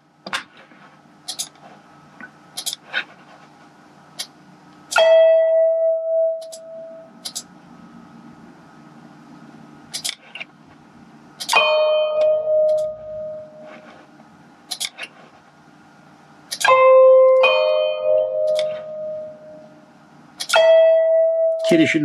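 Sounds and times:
ringing software notes: 5.0s - 7.1s, 11.5s - 13.8s, 16.6s - 19.8s, 20.5s - 22.0s
sharp clicks: 7.2s - 7.5s.

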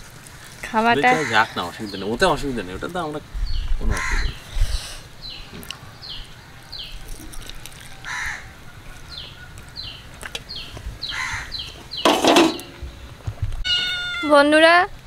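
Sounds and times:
crows cawing: 1.0s - 1.8s, 3.9s - 4.4s, 8.0s - 8.7s, 11.0s - 11.7s.

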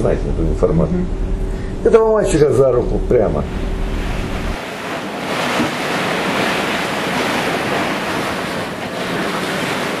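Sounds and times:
waves rushing: 3.2s - 10.0s.

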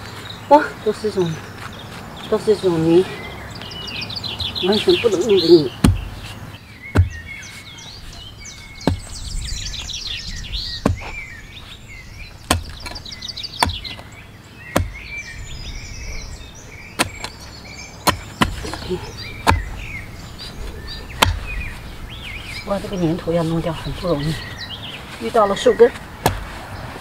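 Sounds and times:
songbirds chirping: 0.0s - 27.0s
mattock striking hard clay: 5.8s - 6.2s, 6.9s - 7.3s, 8.8s - 9.1s, 12.4s - 13.0s, 13.6s - 14.0s, 14.7s - 15.1s, 17.0s - 17.4s, 18.0s - 18.8s, 19.4s - 19.8s, 21.2s - 21.5s, 26.2s - 26.6s.

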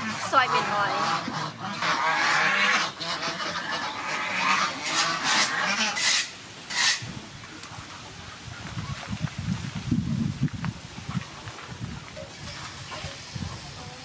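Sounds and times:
chicken calling: 0.0s - 7.0s.

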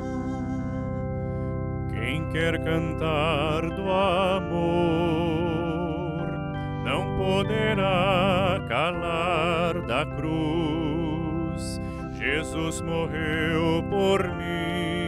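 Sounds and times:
electronic keyboard chords: 0.0s - 15.0s
man and woman singing a hymn: 1.9s - 15.0s
singers breathing: 11.8s - 12.2s.

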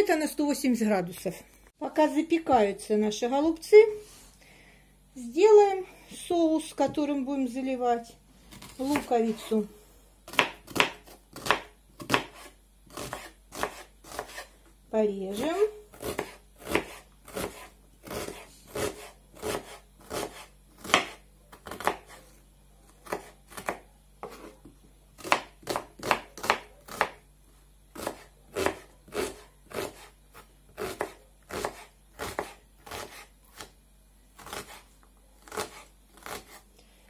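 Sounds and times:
knife chopping onion on wooden board: 8.5s - 9.5s, 10.3s - 14.5s, 15.5s - 22.2s, 22.9s - 27.3s, 27.9s - 33.8s, 34.4s - 36.6s.

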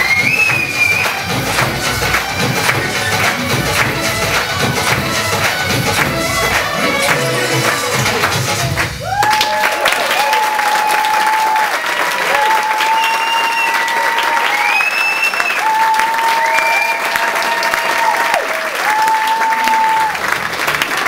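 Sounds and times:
audience applauding: 0.0s - 21.0s
crowd cheering and whooping: 8.7s - 20.4s.

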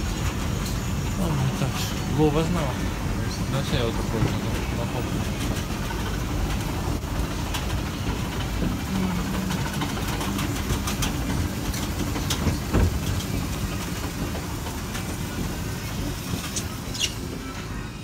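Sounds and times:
escalator rumbling: 0.0s - 18.0s.

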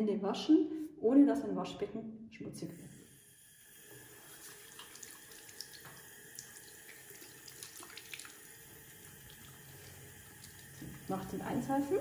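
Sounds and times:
tap running into washbasin: 3.6s - 12.0s.

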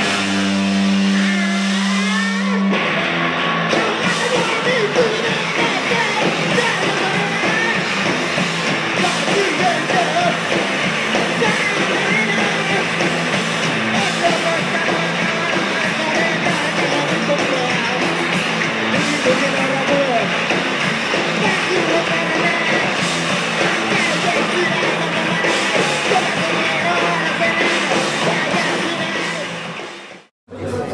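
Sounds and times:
electric guitar: 0.0s - 30.2s
drums: 0.0s - 30.9s
vocalist shouting and singing: 3.7s - 8.2s, 8.9s - 18.2s, 19.0s - 20.5s, 21.2s - 29.6s.

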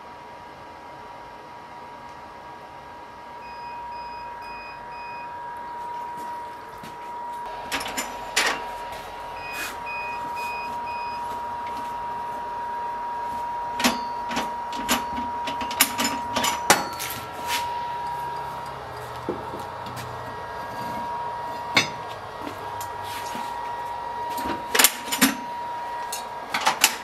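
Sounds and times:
steady high whine: 0.1s - 27.0s
short electronic beeps: 9.3s - 11.3s.

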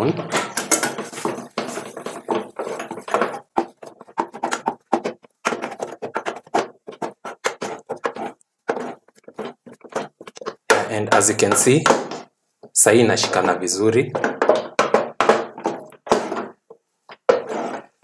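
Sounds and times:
wooden spatula scraping a pot: 0.3s - 12.4s, 13.2s - 18.0s.

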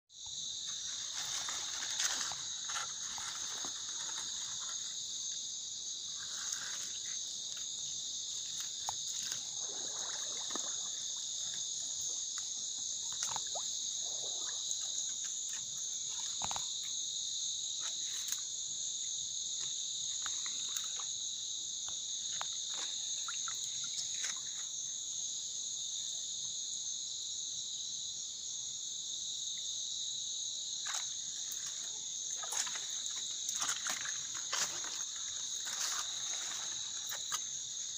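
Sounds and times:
crickets chirring: 0.1s - 37.9s
vegetation rustling: 0.6s - 5.0s, 30.8s - 37.9s.

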